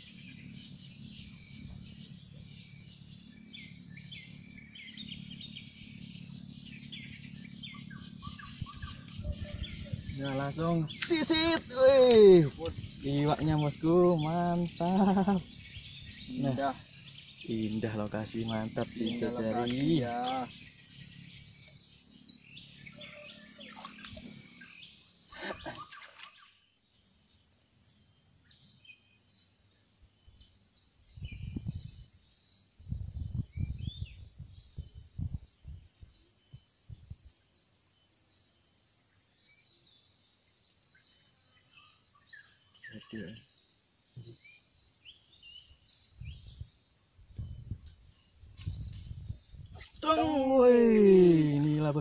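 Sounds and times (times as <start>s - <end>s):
low buffeting rumbles: 0.0s - 23.0s
high insect drone: 0.0s - 52.0s.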